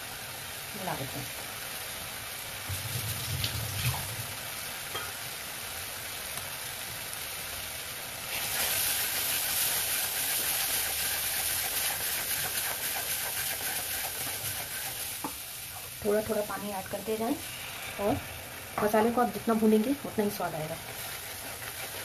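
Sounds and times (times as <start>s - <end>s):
food sizzling in a pan: 0.0s - 22.0s
water hissing on hot pan: 0.0s - 22.0s
spatula stirring: 9.6s - 22.0s.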